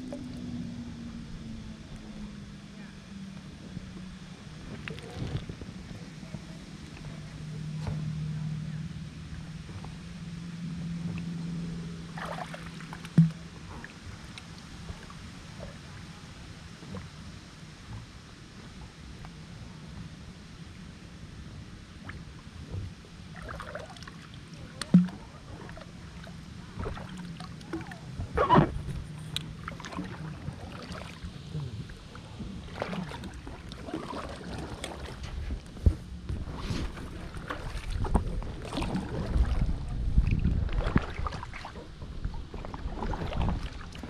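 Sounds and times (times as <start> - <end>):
low rumbling: 0.0 - 44.0
paddle splashing in water: 12.1 - 15.7, 23.3 - 44.0.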